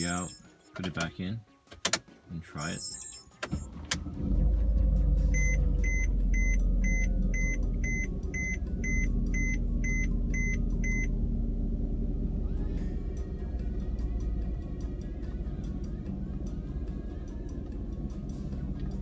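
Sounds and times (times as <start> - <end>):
dashboard warning chime beeping: 0.0 - 0.8, 2.6 - 3.8, 5.3 - 11.1
car engine idling: 3.6 - 19.0.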